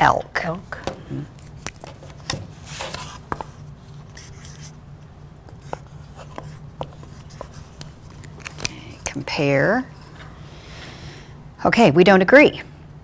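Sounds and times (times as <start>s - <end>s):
marker scratching on whiteboard: 4.1s - 4.8s, 5.5s - 8.2s.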